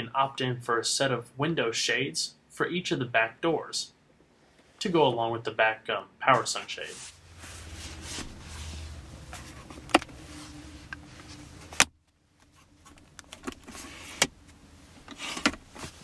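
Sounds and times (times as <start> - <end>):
low hum in car cabin: 6.1 - 16.0.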